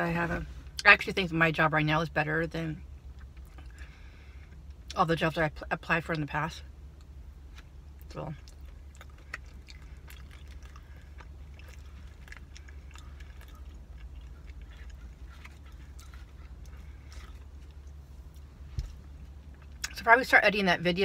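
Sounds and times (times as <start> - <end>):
steady low hum: 0.0 - 21.0
wet mouth chewing sounds: 7.0 - 20.0.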